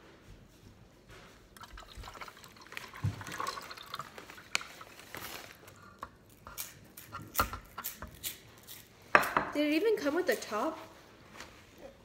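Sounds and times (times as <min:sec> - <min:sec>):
liquid trickling and splashing: 0:01.6 - 0:05.6.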